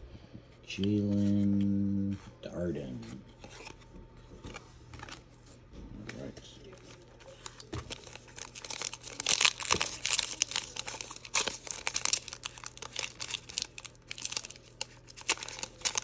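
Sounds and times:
foil wrapper crinkling: 0:06.6 - 0:16.0.

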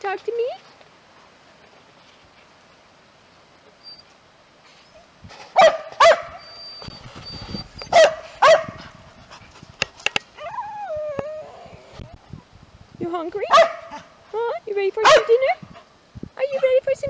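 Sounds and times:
dog barking: 0:05.6 - 0:06.4, 0:07.9 - 0:08.8, 0:13.5 - 0:14.1, 0:15.0 - 0:15.4.

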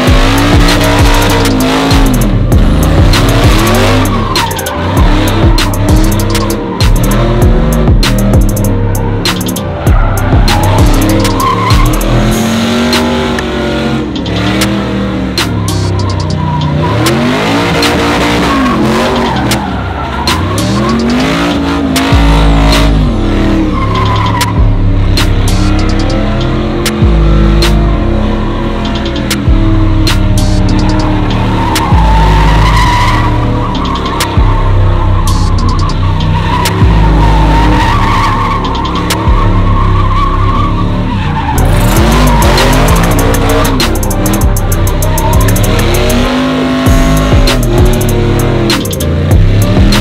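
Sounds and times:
spinning tyres squealing: 0:00.0 - 0:50.0
truck engine revving: 0:00.0 - 0:50.0
tyres squealing on pavement: 0:09.3 - 0:12.3, 0:23.7 - 0:24.6, 0:30.5 - 0:46.3.

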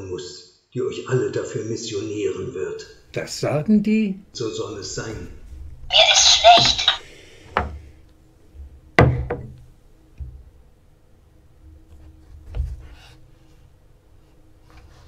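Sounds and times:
knocks: 0:06.2 - 0:07.8, 0:09.0 - 0:09.6.

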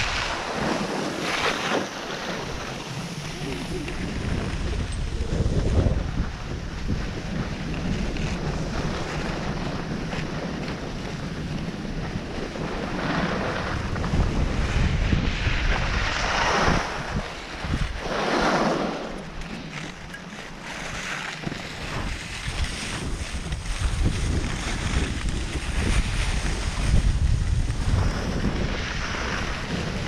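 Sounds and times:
skis sliding on snow: 0:00.0 - 0:30.0
wind buffeting microphone: 0:00.0 - 0:30.0.

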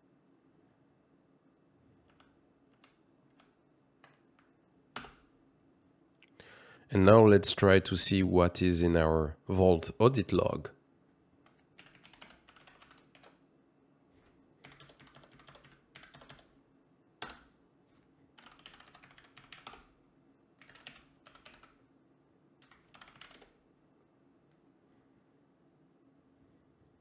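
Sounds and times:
typing on computer keyboard: 0:02.0 - 0:05.3, 0:11.4 - 0:13.4, 0:14.6 - 0:16.5, 0:17.2 - 0:17.5, 0:18.3 - 0:20.0, 0:20.6 - 0:21.8, 0:22.6 - 0:23.6.

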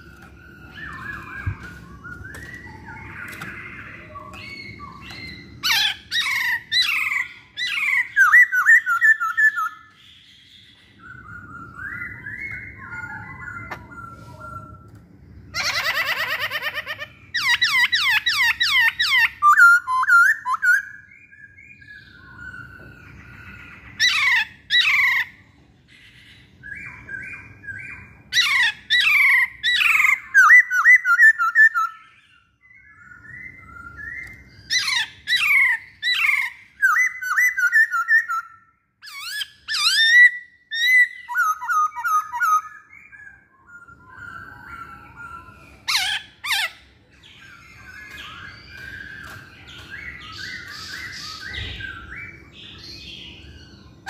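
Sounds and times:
bird whistling falling notes: 0:00.0 - 0:06.6.

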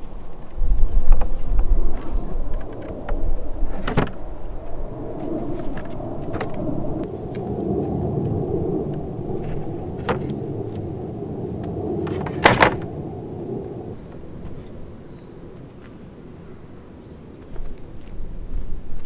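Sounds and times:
steady low rumble: 0:00.0 - 0:19.0
plywood panels knocking: 0:12.1 - 0:12.8.

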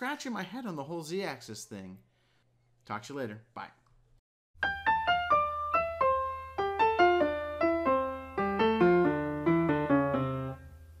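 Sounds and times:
descending keyboard notes: 0:04.6 - 0:10.7.

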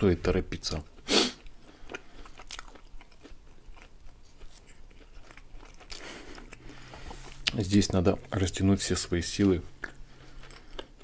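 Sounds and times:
chewing pastry with crunches: 0:00.6 - 0:11.0
biting into pastry: 0:01.3 - 0:08.4.

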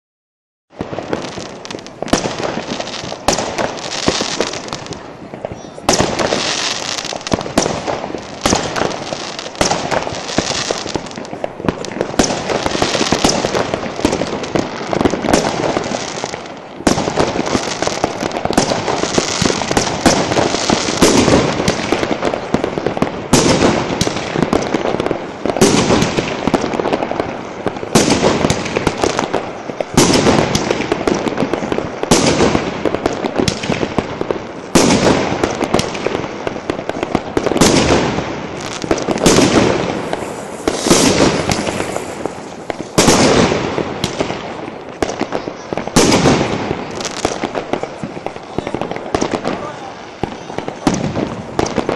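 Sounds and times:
fireworks crackling: 0:00.7 - 0:51.9
firework shells banging: 0:25.7 - 0:45.3.

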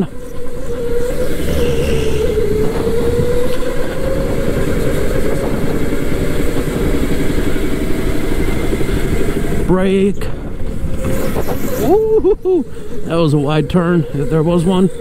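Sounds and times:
go-kart electric motor whining: 0:00.0 - 0:15.0.

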